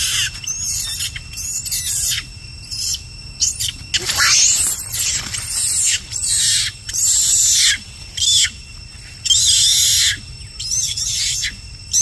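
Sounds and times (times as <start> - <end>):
macaque screaming: 4.0 - 6.0.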